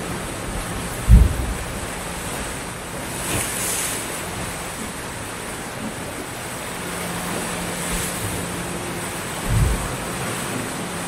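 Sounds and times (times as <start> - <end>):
waves breaking on shore: 0.0 - 11.0.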